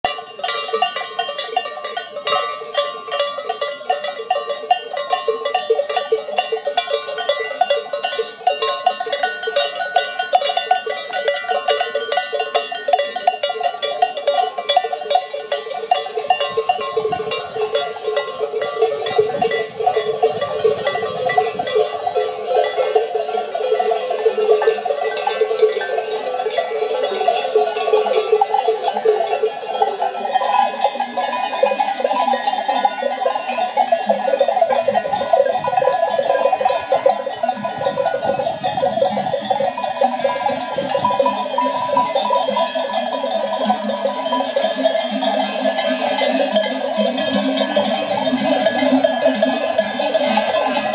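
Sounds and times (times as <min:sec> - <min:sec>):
sheep bells jangling: 0:00.0 - 0:50.9.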